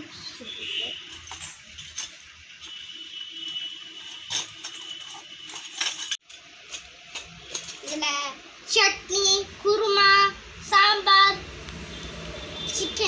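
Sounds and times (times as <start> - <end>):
small metal pots clinking: 3.5 - 8.1.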